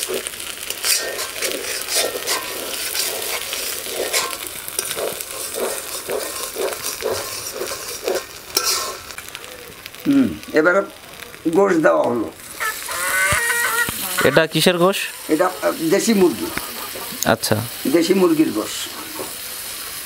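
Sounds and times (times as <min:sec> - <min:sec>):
metal spatula scraping a pan: 0:00.0 - 0:09.2, 0:15.2 - 0:17.2
pastes sizzling in oil: 0:00.0 - 0:20.0.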